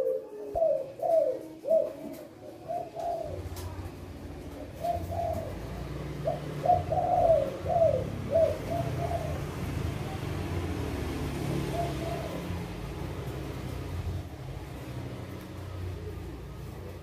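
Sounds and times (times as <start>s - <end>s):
doves cooing: 0.0s - 17.0s.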